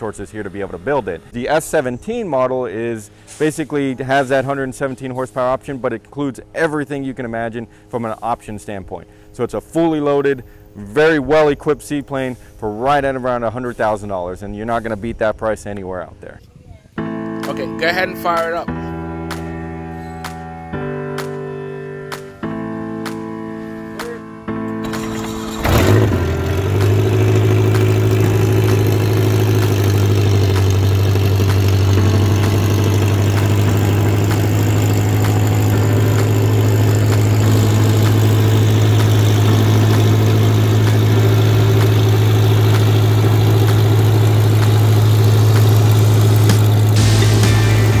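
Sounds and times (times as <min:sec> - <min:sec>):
seaplane engine starting and idling: 0:00.0 - 0:01.8, 0:24.8 - 0:48.0.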